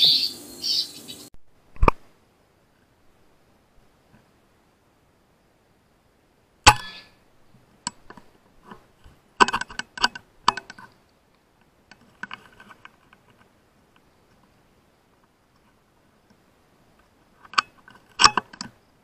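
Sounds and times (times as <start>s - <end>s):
sharp clicks and knocks: 7.8s - 11.0s, 17.0s - 18.8s.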